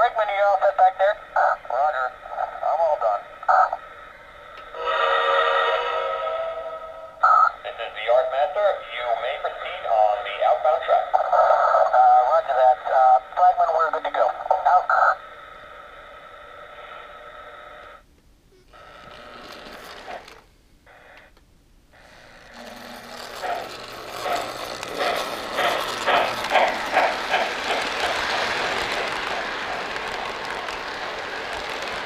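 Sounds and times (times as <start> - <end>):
model train rolling on track: 0.0 - 15.8, 18.7 - 21.2, 21.9 - 32.0
steam locomotive chuffing: 4.7 - 7.4, 22.0 - 32.0
faint steady hum: 12.5 - 23.6.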